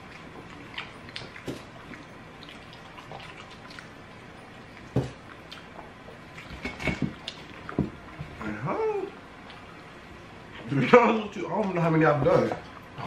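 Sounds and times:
wet eating smacks: 0.0 - 8.2.

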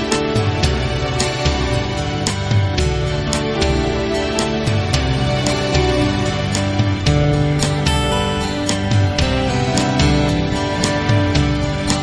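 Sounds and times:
guitar-led background music: 0.0 - 12.0.

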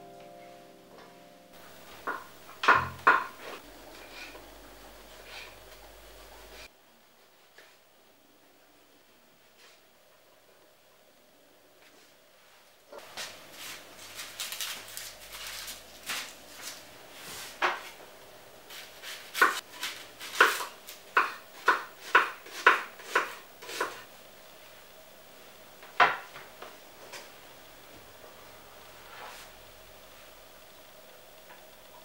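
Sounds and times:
knife chopping on wooden board: 1.7 - 3.6, 19.3 - 24.0.

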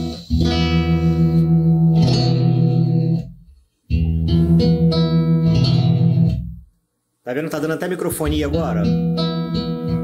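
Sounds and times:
amplified guitar chord strummed: 8.5 - 10.0.

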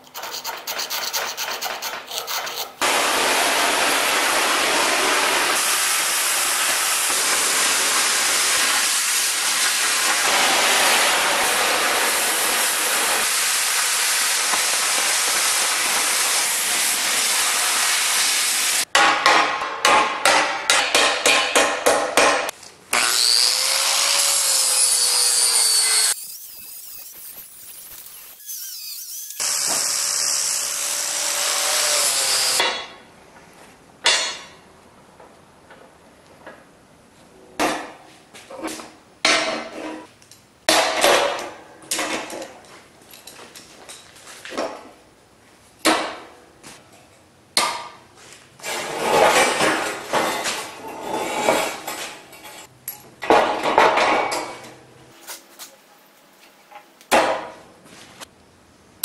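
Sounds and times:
angle grinder on steel: 23.0 - 32.6.

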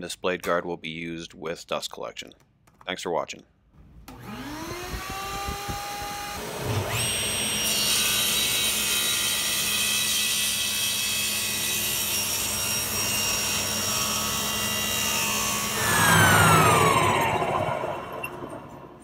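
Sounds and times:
table saw ripping wood: 4.1 - 18.1
dust collection vacuum: 4.1 - 19.0.

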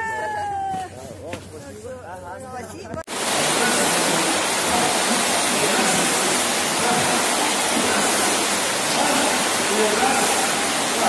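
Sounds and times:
water splashing in swimming pool: 3.1 - 11.0.

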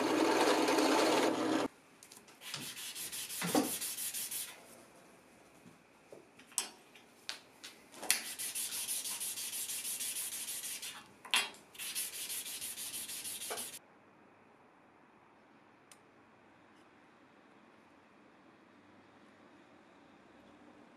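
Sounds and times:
metal plate rubbed on sandpaper: 8.3 - 11.0, 11.8 - 13.8.

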